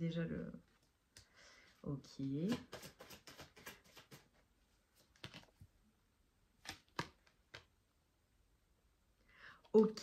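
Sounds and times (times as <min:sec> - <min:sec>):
cards clicking on a table: 0:02.4 - 0:04.2, 0:06.6 - 0:07.7.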